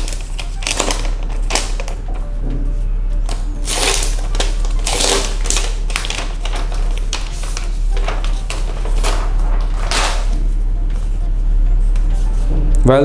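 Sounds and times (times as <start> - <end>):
plastic wrap crinkling: 0.0 - 2.1, 3.3 - 11.2.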